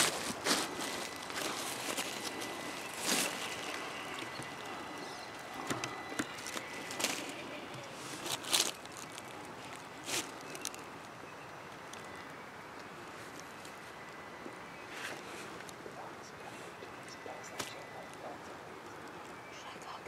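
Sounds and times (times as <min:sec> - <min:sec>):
dry leaves crunching: 0:00.0 - 0:10.9.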